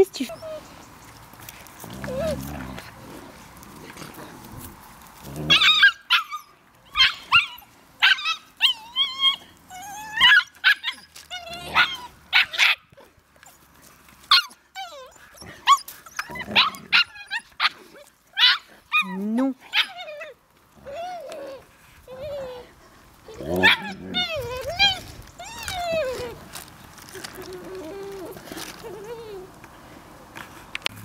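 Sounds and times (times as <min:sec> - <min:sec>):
puppies yapping and yelping: 0:00.2 - 0:01.2, 0:05.4 - 0:13.6, 0:14.2 - 0:29.6.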